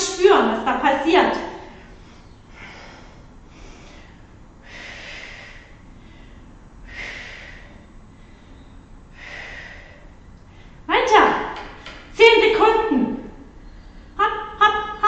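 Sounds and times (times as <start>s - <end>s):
woman breathing out hard: 1.9s - 10.8s.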